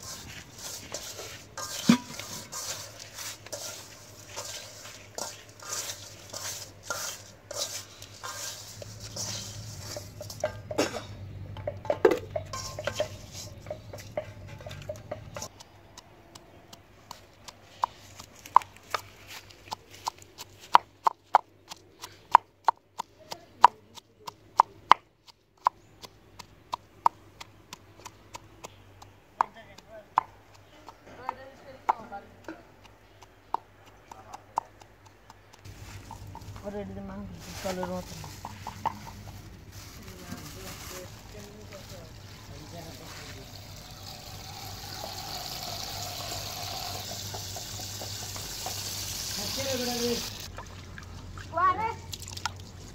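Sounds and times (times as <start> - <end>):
pestle pounding in a mortar: 0.0 - 10.8, 11.6 - 19.0, 19.6 - 36.8, 37.9 - 39.6, 46.2 - 48.9.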